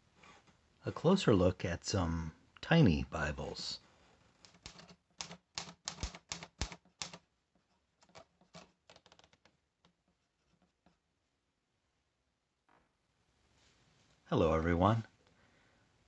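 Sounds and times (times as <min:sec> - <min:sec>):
typewriter keys striking: 0:04.5 - 0:07.2.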